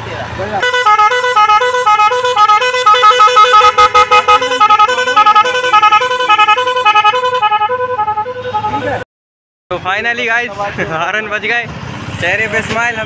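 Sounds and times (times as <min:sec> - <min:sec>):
musical horn playing tune: 0:00.6 - 0:09.0.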